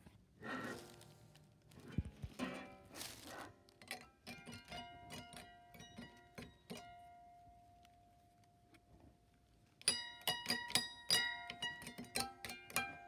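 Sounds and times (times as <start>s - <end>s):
guitar strings plucked behind nut: 3.8s - 7.4s, 9.8s - 13.0s.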